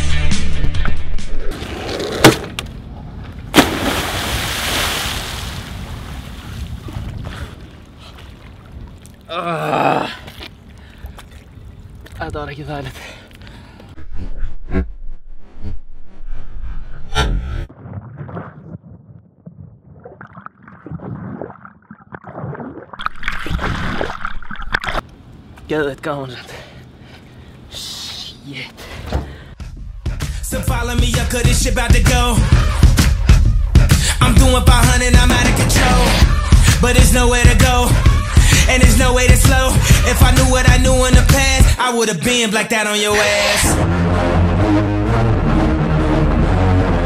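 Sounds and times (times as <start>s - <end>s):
loud water splashing: 3.5s - 8.8s
person splashing into water: 3.5s - 9.3s, 20.0s - 25.0s.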